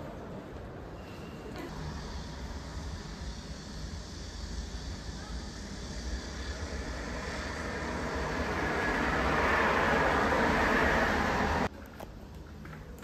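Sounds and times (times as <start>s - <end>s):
aircraft passing overhead: 1.7s - 11.7s.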